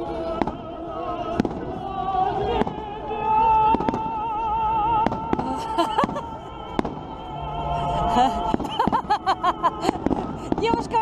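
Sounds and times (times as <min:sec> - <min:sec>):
fireworks bangs: 0:01.3 - 0:01.8, 0:02.5 - 0:02.9, 0:03.6 - 0:04.2, 0:04.9 - 0:07.2, 0:08.4 - 0:09.2, 0:09.8 - 0:11.0.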